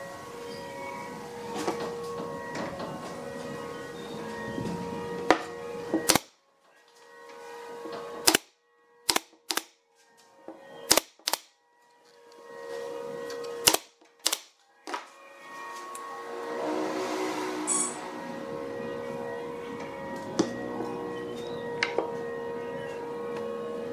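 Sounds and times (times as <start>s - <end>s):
nail gun shots: 6.0s - 6.4s, 8.2s - 8.5s, 9.1s - 9.8s, 10.9s - 11.5s, 13.6s - 14.6s.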